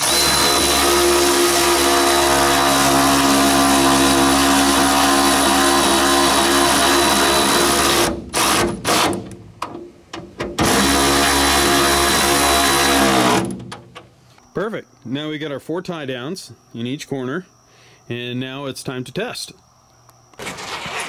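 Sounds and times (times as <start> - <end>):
electric ratchet motor whining: 0.0 - 9.1, 10.6 - 13.5.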